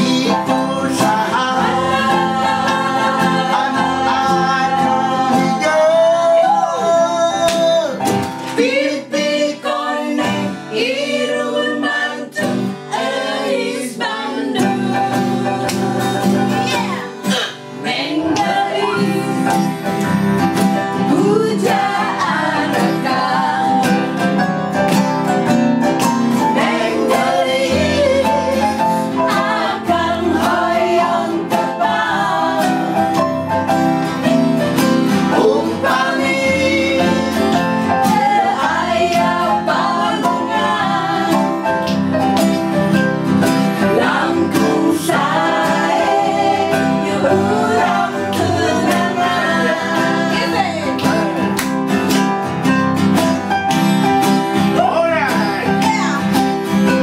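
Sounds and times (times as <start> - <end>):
woman singing: 0.0 - 7.0, 9.0 - 12.6, 14.0 - 19.6, 21.1 - 24.1, 43.9 - 51.3
people singing along: 0.0 - 24.9, 26.4 - 52.0
acoustic guitars strummed: 0.0 - 57.0.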